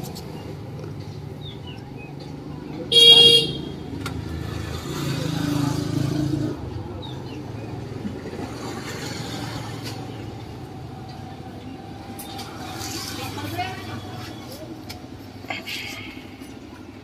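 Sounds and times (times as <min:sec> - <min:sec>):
low traffic hum: 0:00.0 - 0:17.0
vehicle engine passing: 0:03.9 - 0:14.7.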